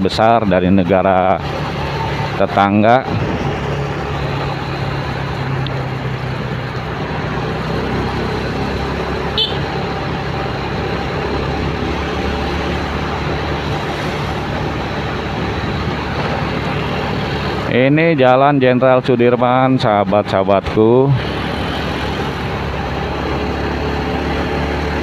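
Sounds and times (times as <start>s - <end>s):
road and traffic noise: 0.0s - 25.0s
motorcycle engine running: 3.2s - 17.7s.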